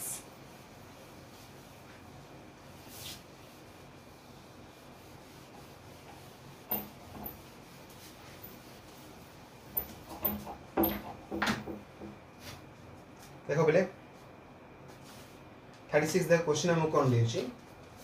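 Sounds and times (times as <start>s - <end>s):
duster rubbing on whiteboard: 0.3s - 11.2s.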